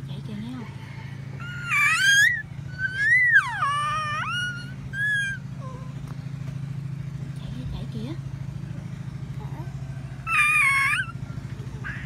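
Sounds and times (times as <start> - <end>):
steady low hum: 0.0 - 12.0
baby squealing: 1.4 - 6.0, 10.3 - 11.2.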